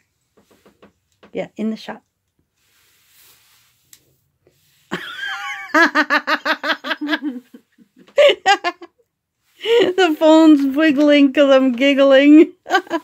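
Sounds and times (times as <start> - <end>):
woman giggling: 4.9 - 9.0, 12.5 - 13.0
woman laughing: 4.9 - 9.0, 9.6 - 10.2, 12.4 - 13.0.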